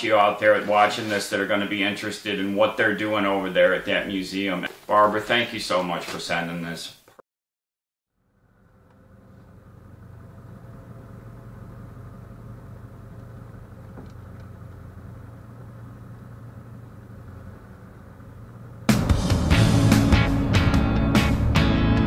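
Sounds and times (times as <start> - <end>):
vehicle engine pulling away: 8.1 - 22.0.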